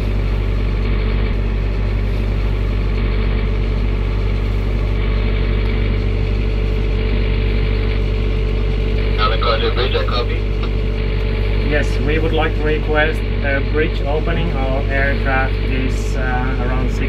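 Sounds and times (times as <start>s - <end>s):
boat engine humming: 0.0s - 17.0s.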